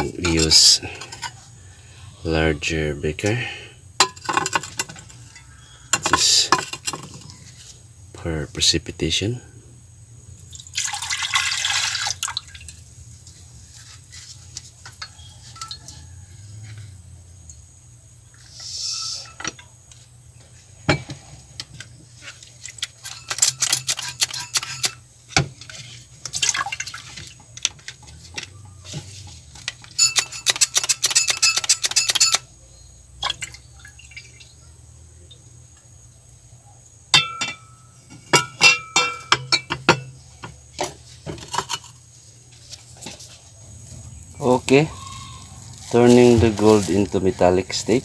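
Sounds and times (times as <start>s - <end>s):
liquid pouring and splashing: 10.5s - 12.8s, 26.3s - 27.4s
glass clinking: 14.9s - 16.0s, 30.0s - 32.5s, 37.1s - 40.2s.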